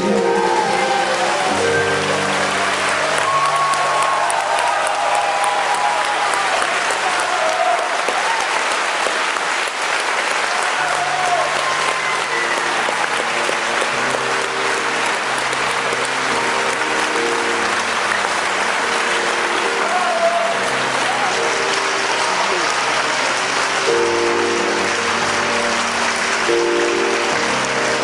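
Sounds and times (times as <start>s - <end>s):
audience applauding: 0.0s - 28.0s
band holding chords: 12.3s - 28.0s.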